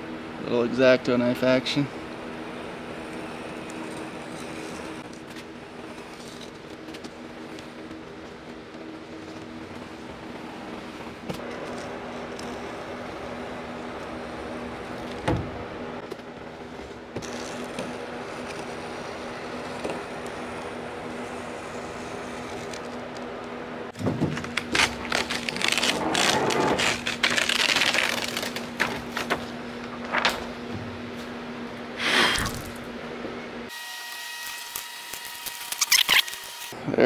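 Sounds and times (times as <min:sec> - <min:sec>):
paper crinkling and scraping: 0:03.6 - 0:09.9, 0:24.2 - 0:30.5.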